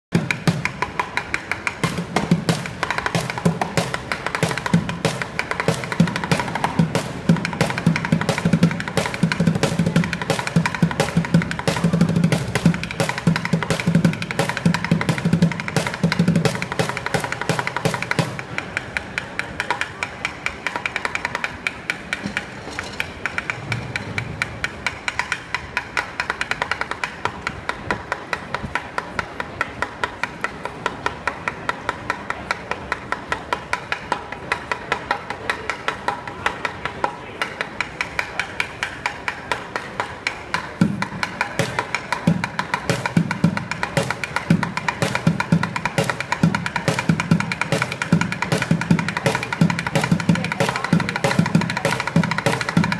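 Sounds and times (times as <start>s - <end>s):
drumsticks striking plastic buckets: 37.9s - 52.9s.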